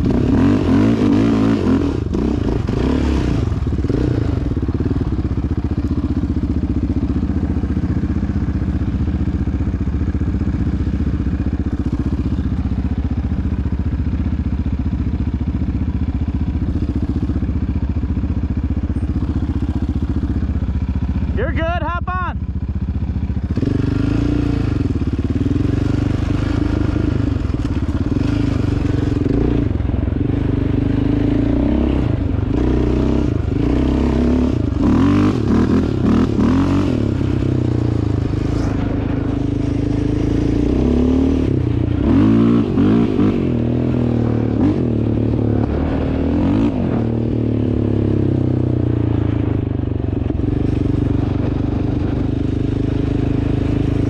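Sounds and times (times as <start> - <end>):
engine revving: 0.0 - 5.7, 23.4 - 54.0.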